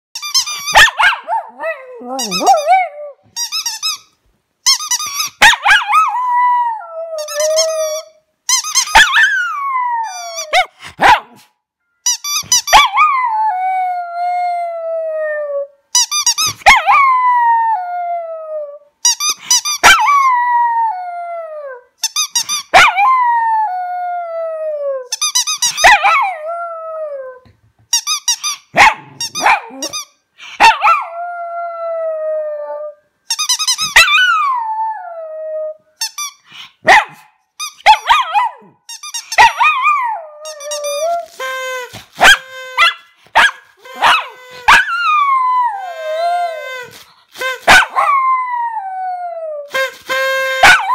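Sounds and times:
dog howling: 0:01.0 - 0:03.2.

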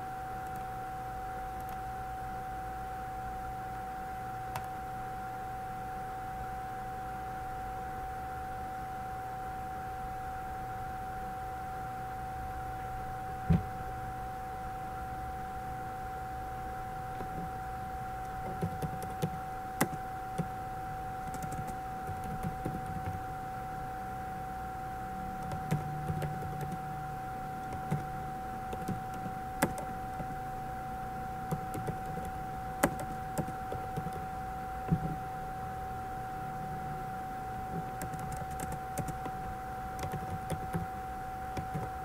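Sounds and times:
high-pitched electrical hum: 0:00.0 - 0:42.0
computer keyboard keystrokes: 0:01.6 - 0:01.8, 0:04.5 - 0:04.8, 0:17.2 - 0:17.5, 0:18.2 - 0:20.5, 0:21.2 - 0:23.2, 0:25.4 - 0:26.8, 0:27.6 - 0:28.1, 0:28.7 - 0:30.3, 0:31.5 - 0:34.2, 0:34.9 - 0:35.2, 0:37.7 - 0:39.4, 0:40.0 - 0:40.9, 0:41.6 - 0:42.0.

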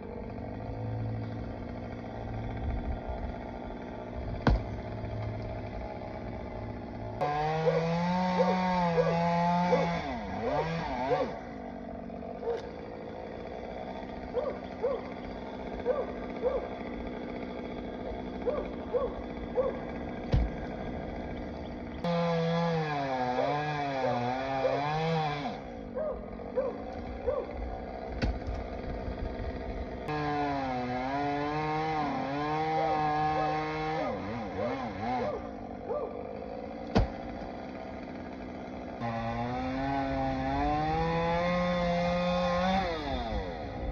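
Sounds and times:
chainsaw cutting at high revs: 0:00.0 - 0:43.9
chainsaw idling with throttle blips: 0:00.0 - 0:43.9.

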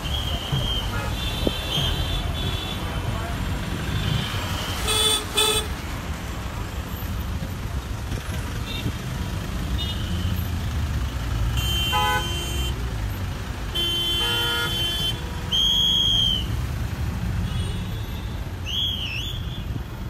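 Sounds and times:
vehicle horns honking: 0:00.0 - 0:03.1, 0:03.8 - 0:05.8, 0:09.8 - 0:10.5, 0:11.5 - 0:12.8, 0:13.7 - 0:16.5, 0:17.4 - 0:19.6
road traffic rumbling: 0:00.0 - 0:20.0.

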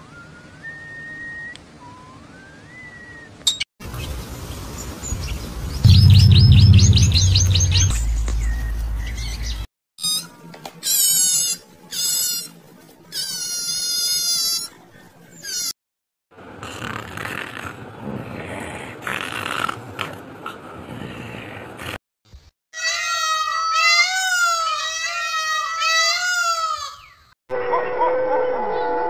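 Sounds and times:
bird-like chirps: 0:05.2 - 0:09.6
loud low hum: 0:05.8 - 0:09.6.

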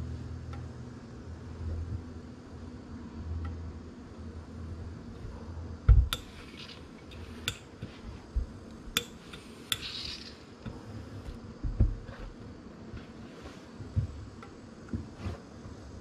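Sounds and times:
steam iron hissing: 0:06.0 - 0:12.4.

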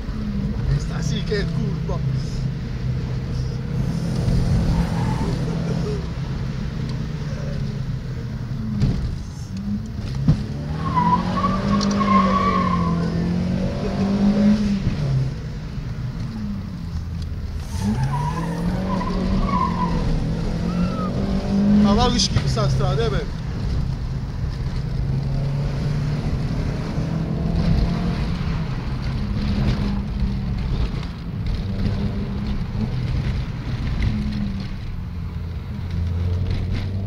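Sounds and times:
car engine pulling hard: 0:00.0 - 0:37.0
tyres squealing: 0:10.7 - 0:13.3, 0:17.6 - 0:21.4.

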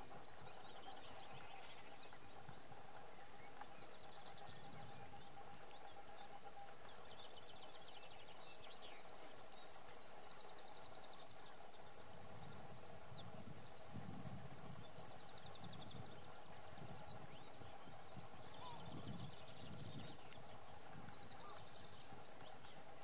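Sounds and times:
bird chirps: 0:00.1 - 0:23.0
birds trilling: 0:16.3 - 0:21.7.

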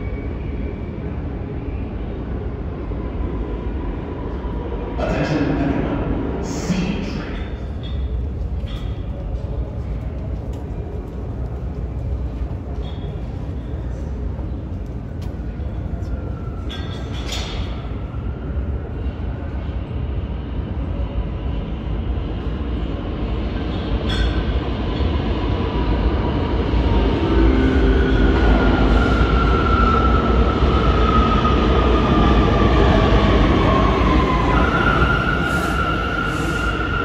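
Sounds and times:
subway train rumble: 0:00.0 - 0:37.0
train whine sliding down in pitch: 0:26.8 - 0:37.0.

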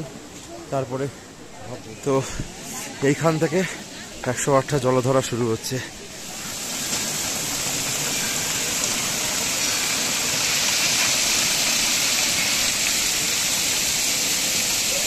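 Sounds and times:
water pouring from spouts: 0:03.0 - 0:15.0.

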